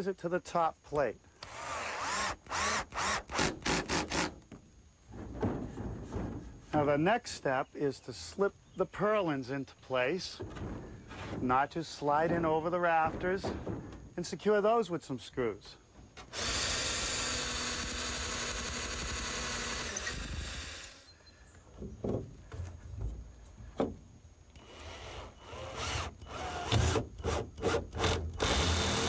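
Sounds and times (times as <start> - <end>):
power drill driving screws: 1.4 - 4.3, 16.3 - 21.1, 24.6 - 29.0
wood knocking: 4.5 - 6.9, 10.4 - 14.2, 21.7 - 24.0.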